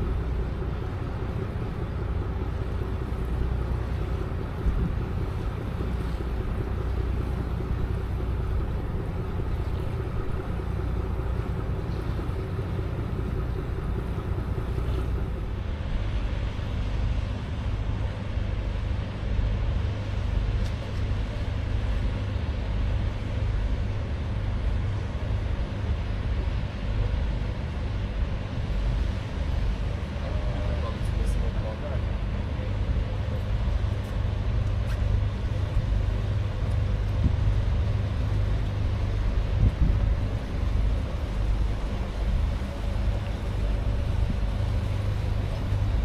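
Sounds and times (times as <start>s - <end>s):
ship engine hum: 0.0s - 46.0s
water noise: 0.0s - 46.0s
wind buffeting microphone: 35.3s - 46.0s.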